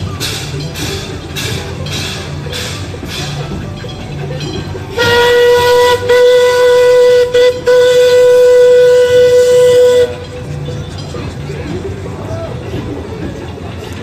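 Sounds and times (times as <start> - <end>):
steam locomotive whistle: 4.9 - 10.4.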